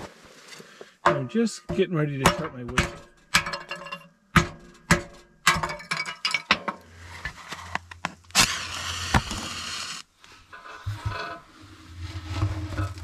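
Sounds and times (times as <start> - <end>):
flame hissing: 8.3 - 10.1.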